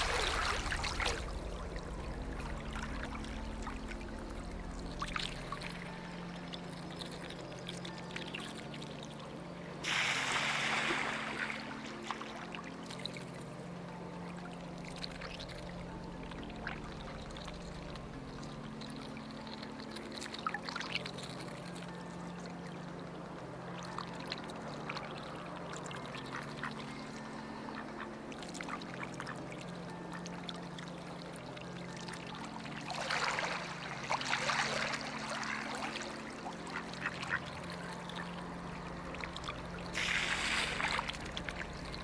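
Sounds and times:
rush of water: 0.0s - 7.5s, 9.8s - 13.1s, 31.7s - 42.0s
water trickling: 0.0s - 42.0s.

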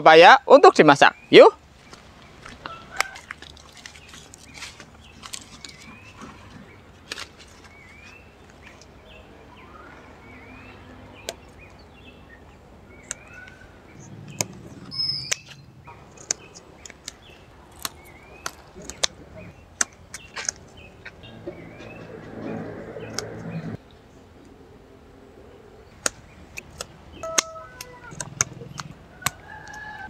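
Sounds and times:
rustle: 1.7s - 9.2s
bird calling rising note: 12.9s - 16.0s, 27.2s - 28.8s.

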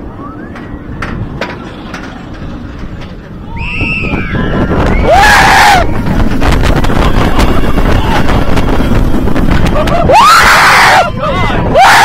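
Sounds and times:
wind rushing over microphone: 0.0s - 12.0s
riders screaming: 3.4s - 6.1s, 9.8s - 12.0s.

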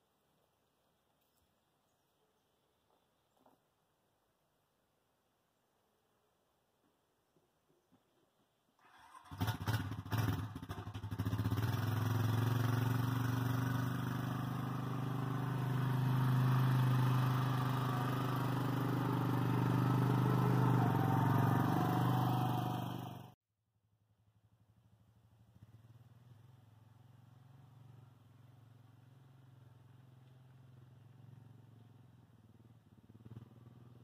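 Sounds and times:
atv engine starting and running: 8.8s - 23.4s, 24.5s - 34.0s.

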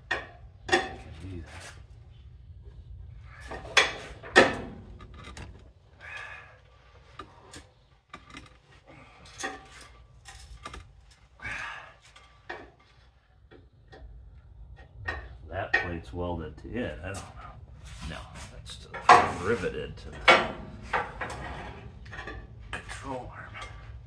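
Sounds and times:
metal scraping: 15.0s - 24.0s.

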